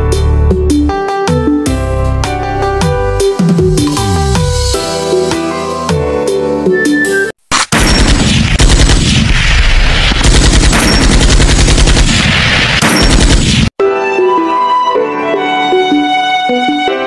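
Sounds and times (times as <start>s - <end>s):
music: 0.0s - 7.4s, 13.8s - 17.0s
rapid automatic gunfire: 7.7s - 13.7s.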